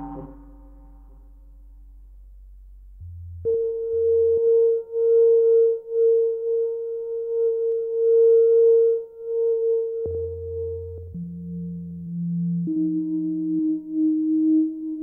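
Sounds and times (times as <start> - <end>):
held electronic tone: 0.0 - 0.9
low hum: 0.0 - 4.6.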